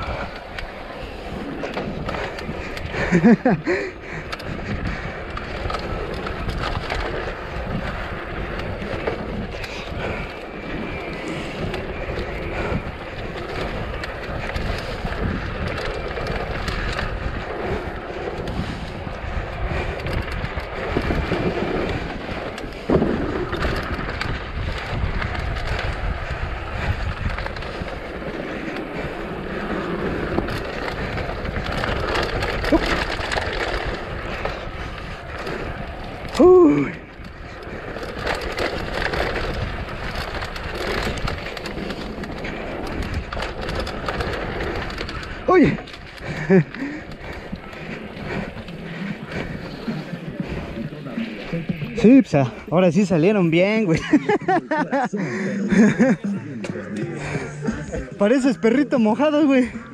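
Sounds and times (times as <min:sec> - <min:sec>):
bike jolting: 0:00.0 - 0:59.9
bike rattling over rough ground: 0:00.0 - 0:59.9
bike tyres rolling on dirt: 0:00.0 - 0:59.9
wind buffeting microphone: 0:00.0 - 0:59.9.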